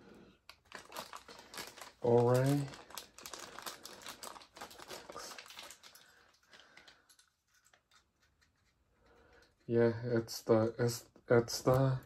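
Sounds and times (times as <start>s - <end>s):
plastic toy and packaging clicking: 0.5s - 9.7s.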